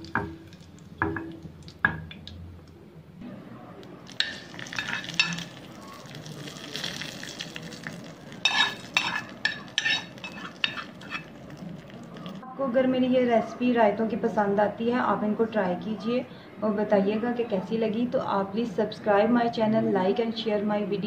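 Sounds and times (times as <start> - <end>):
spices frying in hot oil: 0.0 - 2.3, 4.0 - 12.4
spoon scraping pan: 4.2 - 5.6, 8.4 - 11.9.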